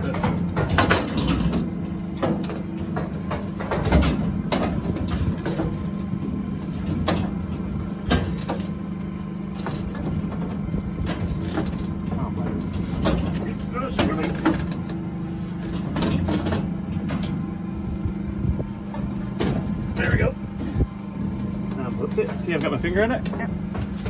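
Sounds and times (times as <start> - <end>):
sharp knocks and clatters: 0.0 - 5.8
low motor hum: 0.0 - 24.0.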